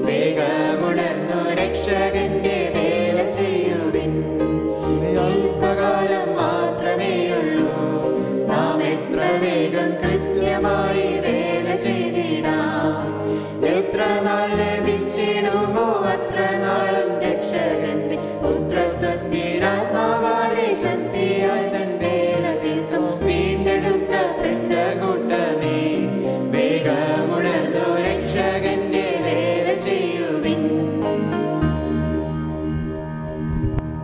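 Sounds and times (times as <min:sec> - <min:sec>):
group singing a hymn: 0:00.0 - 0:31.4
instrumental accompaniment: 0:00.0 - 0:34.0
held bass notes: 0:30.6 - 0:34.0.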